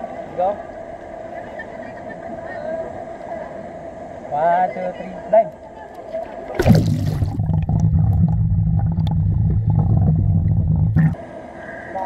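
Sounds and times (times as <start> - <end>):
camera splashing into water: 6.5 - 8.2
muffled underwater rumble: 6.6 - 11.2.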